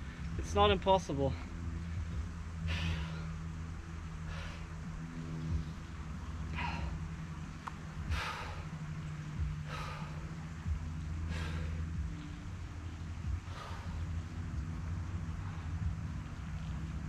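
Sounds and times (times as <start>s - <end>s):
steady low hum: 0.0s - 17.0s
man breathing hard: 1.4s - 14.7s.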